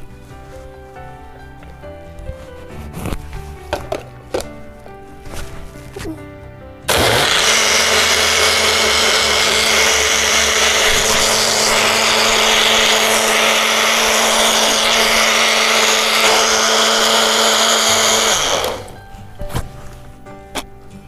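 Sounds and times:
blender running: 0:06.9 - 0:19.0.

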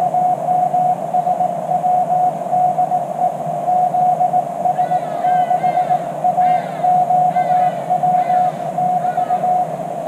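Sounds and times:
low steady hum: 0:00.0 - 0:10.0
morse code tone: 0:03.9 - 0:09.8.

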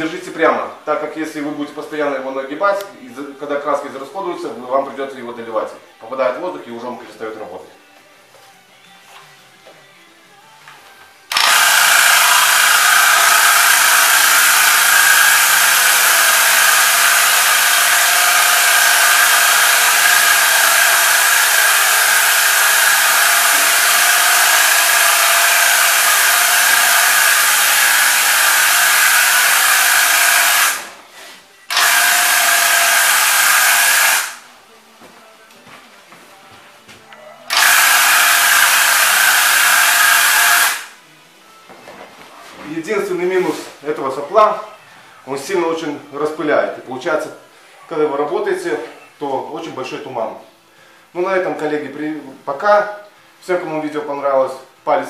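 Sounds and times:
electric paint sprayer buzzing: 0:11.3 - 0:31.1, 0:31.7 - 0:34.5, 0:37.5 - 0:41.0.

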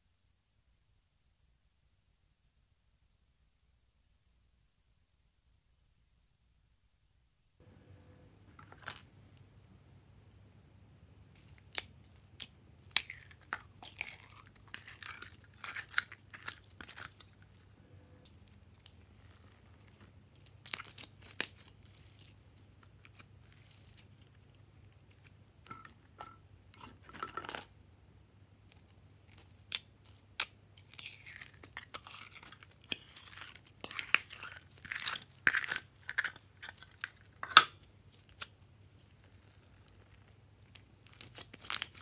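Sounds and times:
slime crackling and tearing: 0:18.8 - 0:25.3, 0:28.8 - 0:42.0.

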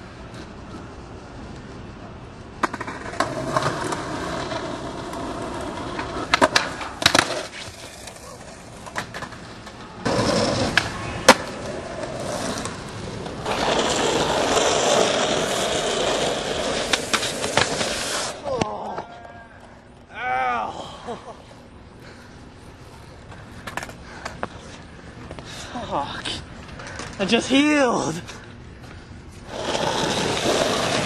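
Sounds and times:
skateboard wheels rolling on pavement: 0:00.0 - 0:20.0, 0:21.4 - 0:31.0
skateboard snaps: 0:05.9 - 0:11.8, 0:16.7 - 0:19.3.

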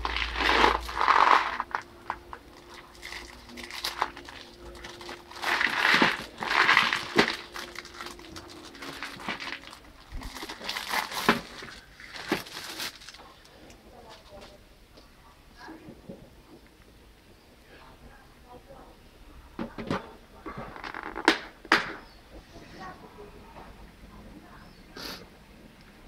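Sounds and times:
plastic shrink wrap crinkling: 0:00.0 - 0:14.6.

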